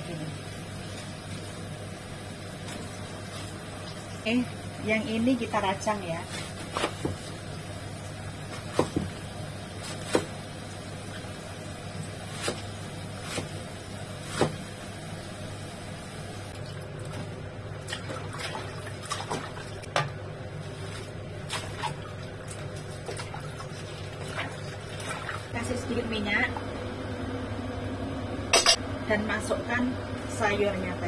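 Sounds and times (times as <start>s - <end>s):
low steady hum: 0.0s - 31.0s
knife cutting cabbage: 9.8s - 10.4s, 12.3s - 13.6s, 14.2s - 14.6s
vegetables splashing in water: 20.8s - 25.5s.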